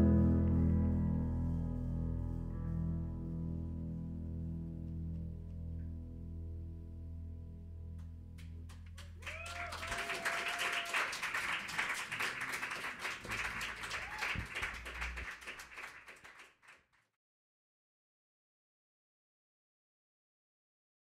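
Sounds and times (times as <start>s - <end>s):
audience applause: 9.0s - 16.8s
person whooping: 9.1s - 11.4s, 13.6s - 15.2s.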